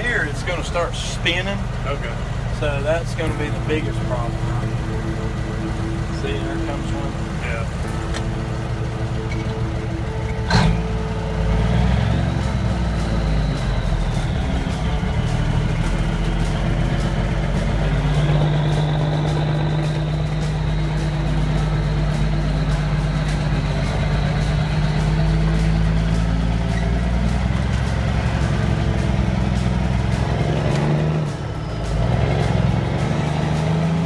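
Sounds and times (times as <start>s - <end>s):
truck diesel engine under load: 0.0s - 34.0s.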